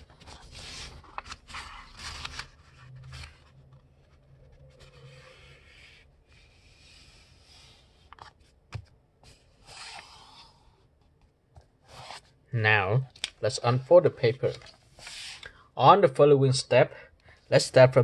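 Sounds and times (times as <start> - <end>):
paper rustling as folded: 0.0 - 5.6.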